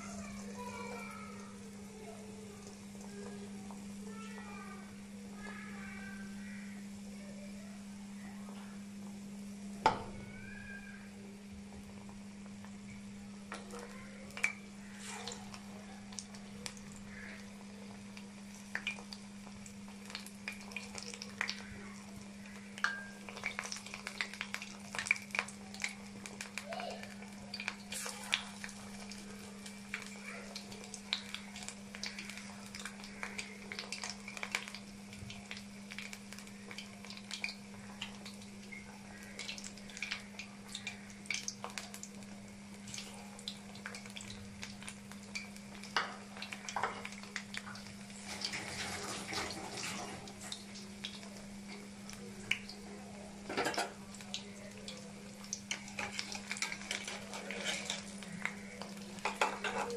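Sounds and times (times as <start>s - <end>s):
oil popping and crackling: 0.0s - 6.9s, 9.1s - 59.9s
metal clattering on pan: 53.5s - 54.0s, 59.2s - 59.9s.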